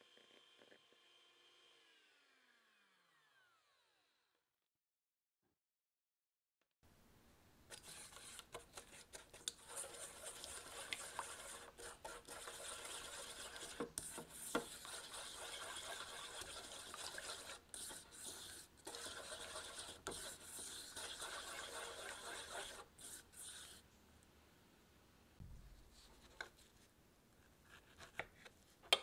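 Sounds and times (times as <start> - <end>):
spatula scraping metal bowl: 7.7 - 23.8.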